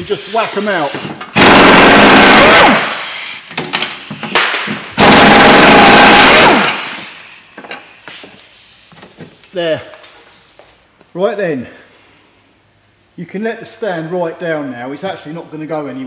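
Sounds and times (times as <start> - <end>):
pneumatic air hammer hammering: 0.9 - 9.4.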